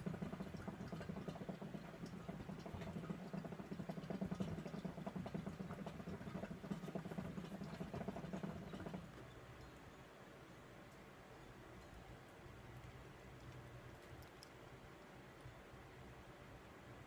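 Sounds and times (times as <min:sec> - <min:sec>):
hookah water bubbling: 0:00.0 - 0:09.4.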